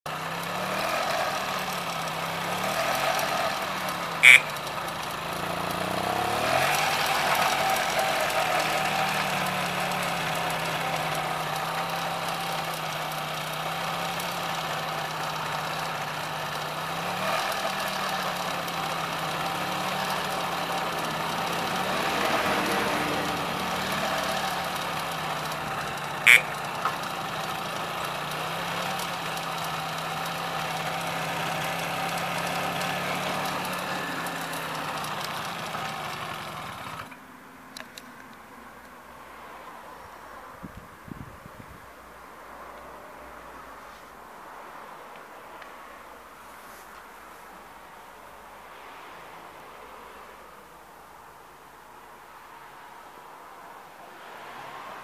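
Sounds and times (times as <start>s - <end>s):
moped engine idling: 0.1s - 37.9s.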